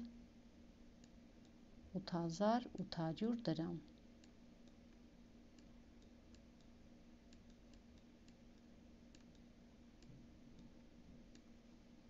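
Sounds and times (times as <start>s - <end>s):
low steady hum: 0.0s - 12.0s
faint clicks of writing: 3.8s - 11.6s.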